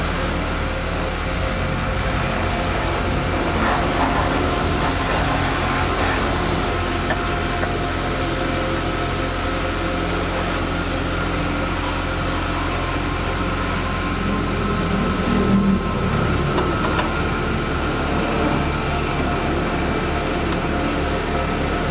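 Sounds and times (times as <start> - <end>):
machine humming: 0.0 - 21.9.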